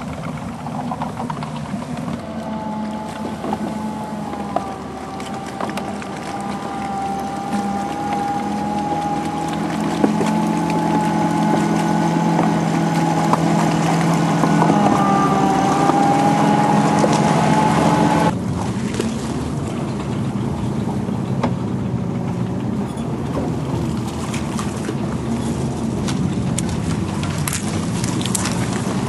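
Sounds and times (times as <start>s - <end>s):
pitched whine: 0.0s - 18.4s
tracked vehicle engine running: 0.0s - 29.0s.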